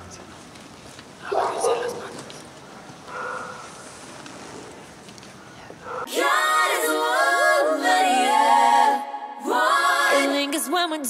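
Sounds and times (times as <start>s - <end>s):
faint background noise: 0.0s - 11.0s
a cappella singing: 6.1s - 11.0s.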